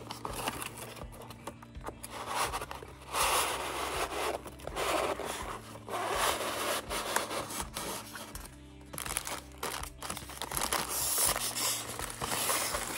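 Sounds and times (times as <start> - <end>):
foam block scraping cardboard: 2.1 - 8.2.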